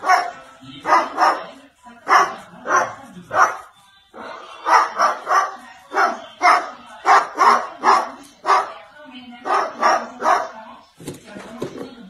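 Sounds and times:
dog barking: 0:00.0 - 0:03.7, 0:04.6 - 0:08.8, 0:09.4 - 0:10.6.

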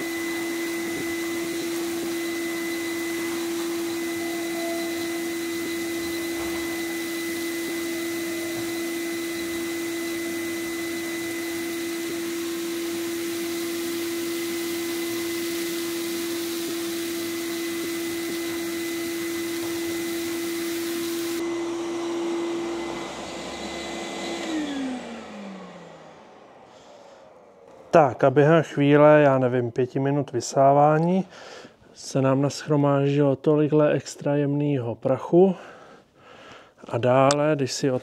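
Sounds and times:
vacuum cleaner whine: 0:00.0 - 0:29.8.

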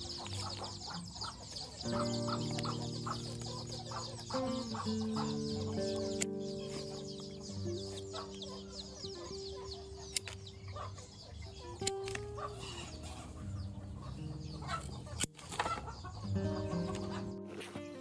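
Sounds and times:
birds chirping: 0:00.0 - 0:18.0
music with long held notes: 0:01.8 - 0:10.6, 0:16.1 - 0:18.0.

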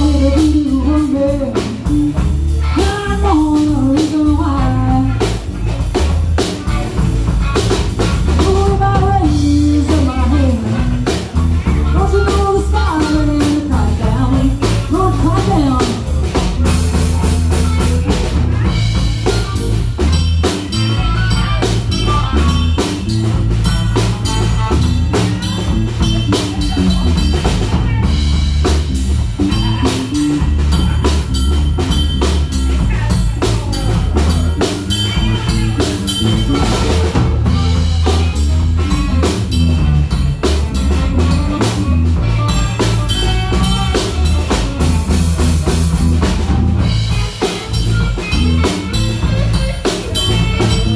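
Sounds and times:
drum kit steady beat: 0:00.0 - 0:50.9
electric bass: 0:00.0 - 0:50.9
electric guitar: 0:00.0 - 0:50.9.

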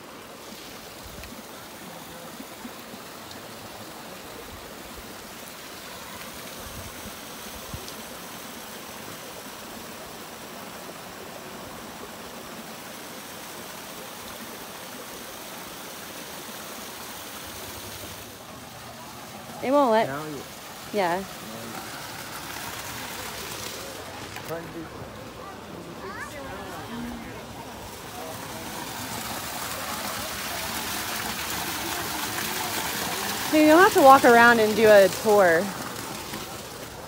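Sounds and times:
water pouring over rocks: 0:00.0 - 0:37.0.

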